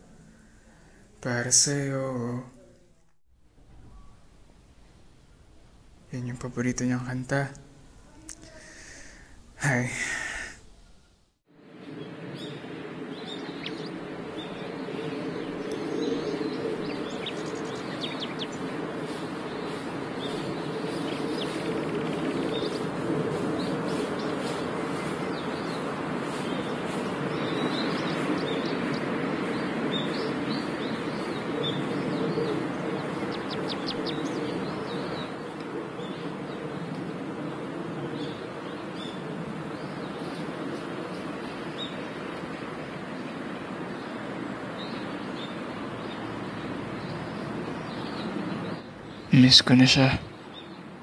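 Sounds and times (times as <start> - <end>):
low background noise: 0.0 - 51.0
small birds chirping: 11.8 - 51.0.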